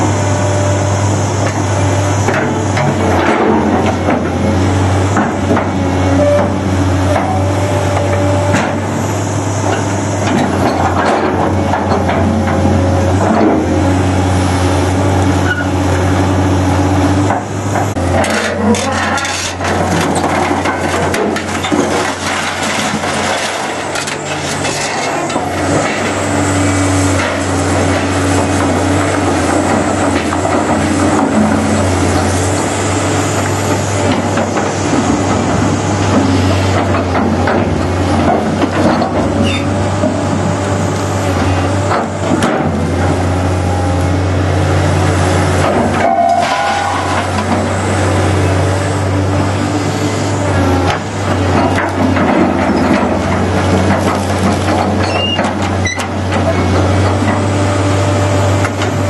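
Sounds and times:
excavator diesel engine: 0.0s - 59.0s
scrap metal and wood clattering: 17.3s - 26.2s, 45.6s - 47.7s.

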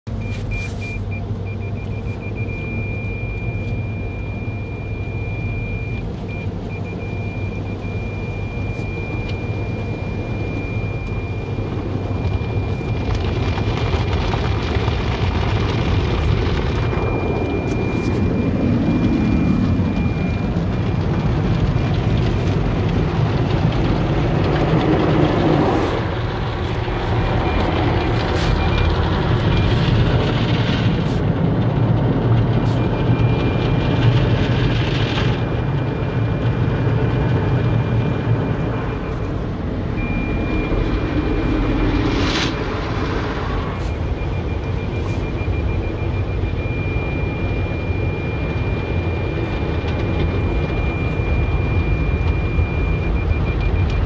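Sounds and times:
low rumble: 0.1s - 54.0s
car wash spraying water: 7.7s - 46.7s.

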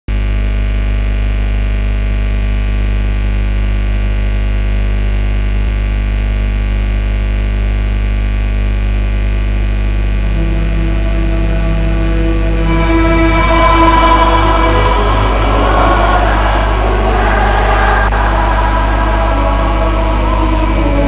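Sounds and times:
loud low drone: 9.6s - 21.0s
background music: 10.2s - 21.0s.

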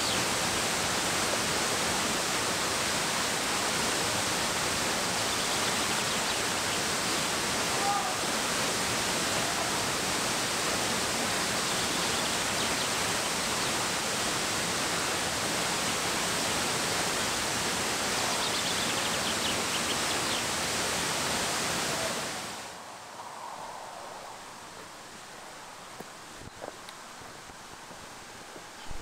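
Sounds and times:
waterfall rushing: 0.0s - 29.0s.

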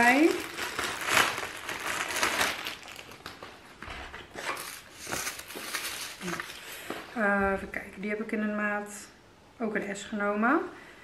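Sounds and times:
plastic packaging crinkling: 0.0s - 7.1s
fabric rustling: 4.3s - 7.0s.

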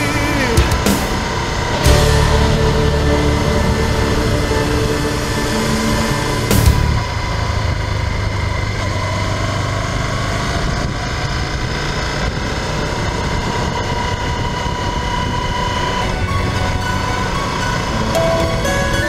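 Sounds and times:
motorcycle engine droning: 0.0s - 19.0s.

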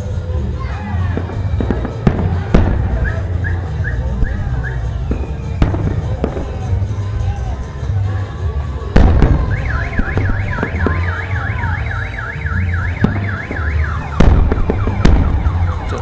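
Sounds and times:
firework bangs: 1.1s - 7.7s, 8.9s - 16.0s
car alarm warbling: 9.3s - 16.0s.

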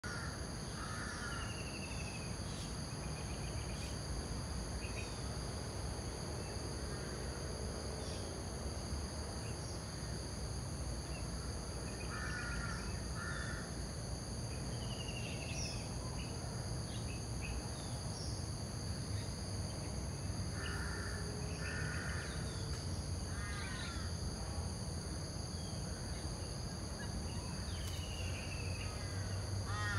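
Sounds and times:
insect drone: 0.0s - 29.9s
cawing bird calls: 29.0s - 29.9s.

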